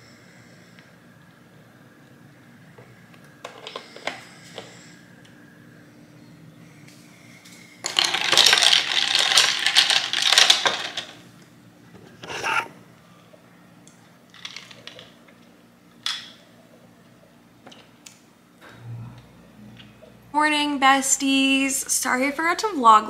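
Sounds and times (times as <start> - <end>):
ice cubes clinking in glass: 7.8 - 11.2.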